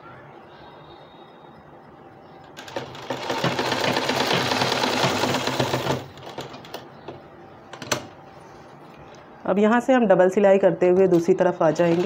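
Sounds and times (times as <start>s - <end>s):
sewing machine stitching: 2.6s - 6.7s, 11.1s - 12.0s.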